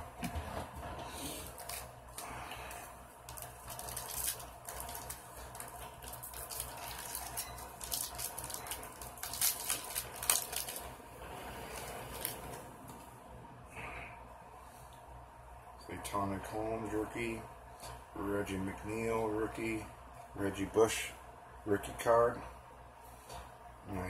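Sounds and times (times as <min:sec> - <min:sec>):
foil wrapper tearing and crinkling: 0:01.4 - 0:11.0, 0:11.6 - 0:12.7
cards being handled: 0:01.5 - 0:10.8.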